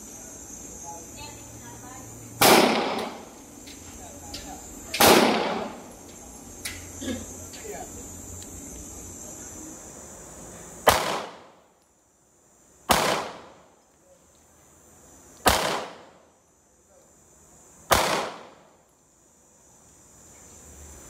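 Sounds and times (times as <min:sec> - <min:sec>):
pistol shots with echo: 0:02.4 - 0:03.3, 0:04.9 - 0:05.8, 0:10.8 - 0:11.6, 0:12.9 - 0:13.6, 0:15.4 - 0:16.2, 0:17.9 - 0:18.6.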